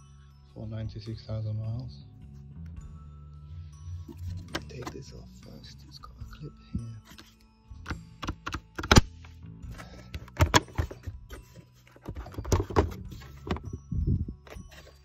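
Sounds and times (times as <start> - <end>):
background music: 0.0 - 15.0
plastic clicks and knocks: 7.8 - 9.1, 10.1 - 11.2.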